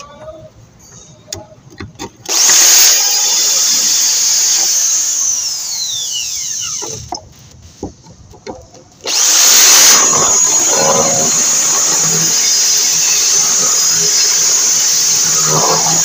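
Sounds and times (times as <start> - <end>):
electric drill running: 2.3 - 7.1, 9.0 - 16.0.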